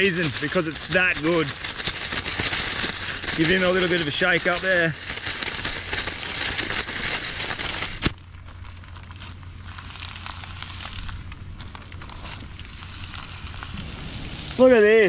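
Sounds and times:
plastic bag crinkling: 0.0 - 15.0
fish frying in hot oil: 12.4 - 15.0.

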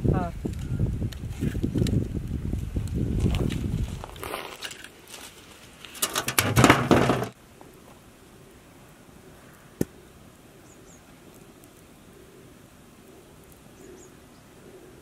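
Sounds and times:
firewood sticks scraping and knocking: 2.8 - 7.4
wood clattering: 6.0 - 7.4.

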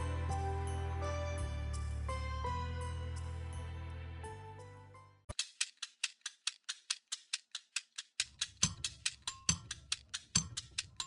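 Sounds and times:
fast ticking percussion: 5.3 - 11.0.

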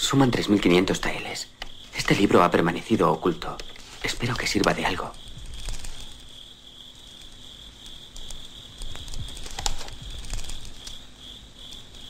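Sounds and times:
crickets chirping: 0.0 - 12.0
soft clicks and rustles: 8.2 - 11.0.

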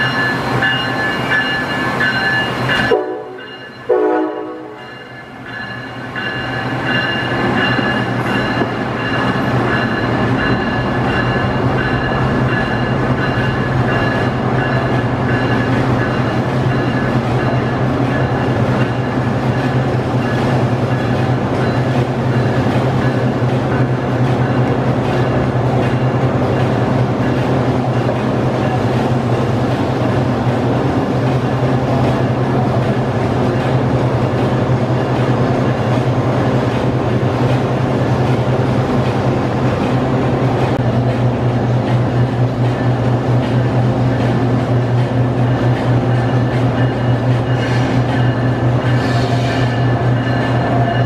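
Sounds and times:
electric locomotive hum and whine: 0.0 - 51.0
train horn blasts: 2.8 - 5.0, 49.0 - 49.9.

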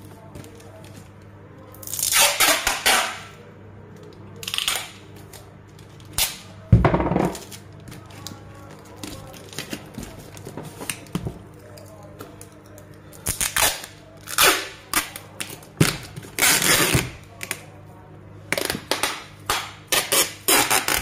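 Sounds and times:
crackling plastic rustle: 7.3 - 11.1.

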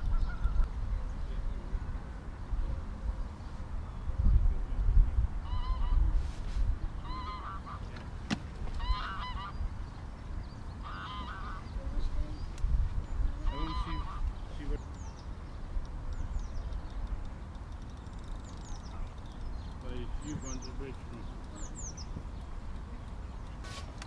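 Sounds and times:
geese honking: 7.0 - 8.0, 8.8 - 9.6, 10.8 - 11.7, 13.4 - 14.8.

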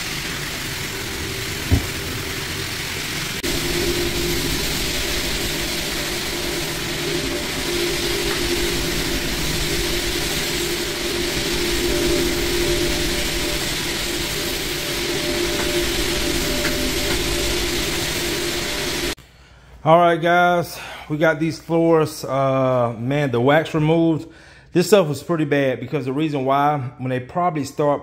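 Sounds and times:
floor buffer humming: 0.0 - 19.2
short thump: 1.7 - 2.0.

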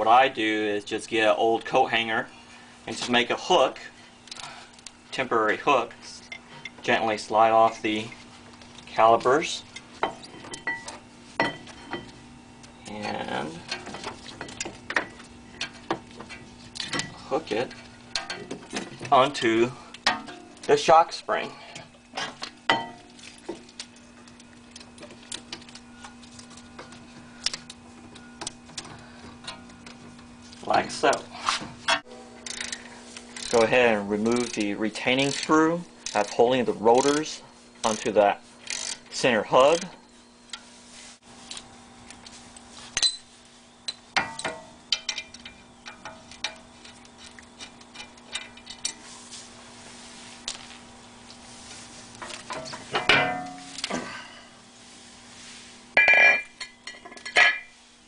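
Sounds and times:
steady low hum: 0.0 - 58.0
wire hanger clicking and tapping metal: 12.8 - 31.3, 31.9 - 40.6, 43.9 - 49.0.

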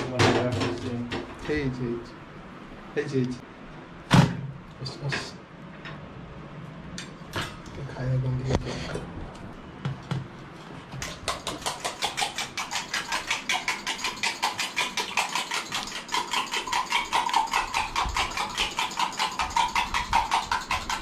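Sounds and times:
rapid even tapping: 11.0 - 21.0.

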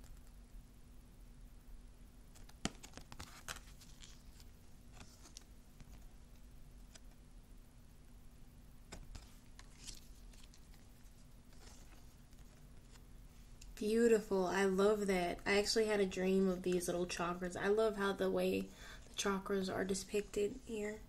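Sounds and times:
faint steady hum: 0.0 - 21.0
cards sliding and clicking: 8.9 - 10.8.

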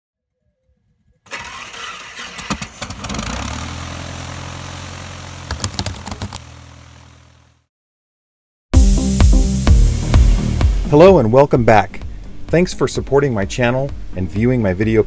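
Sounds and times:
aircraft engine starting: 1.1 - 7.4
sharp clicks: 5.5 - 6.4.

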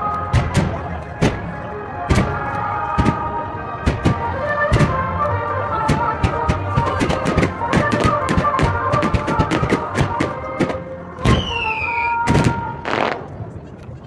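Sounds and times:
falling whistling tone: 11.3 - 12.3.

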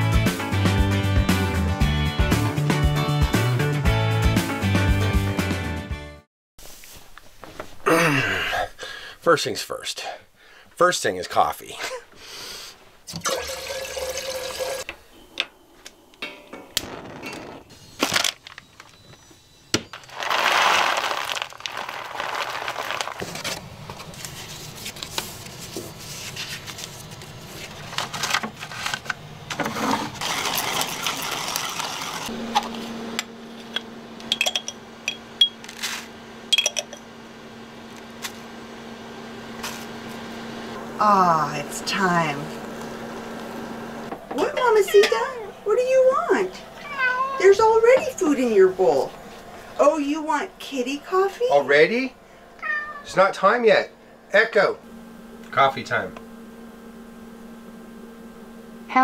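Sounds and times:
paper filters handled: 19.9 - 32.8
steady low hum: 32.3 - 59.0
spoon clinking: 34.3 - 35.6, 36.5 - 37.0.

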